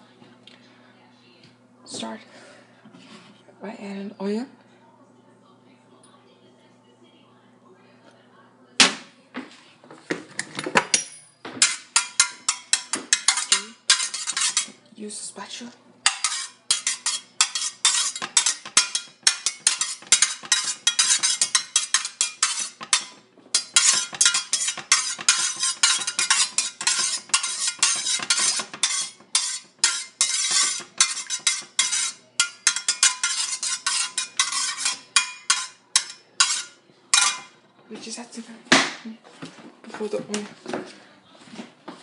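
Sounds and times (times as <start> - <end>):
metal spatula scraping a skillet: 11.6 - 14.8, 16.0 - 37.6.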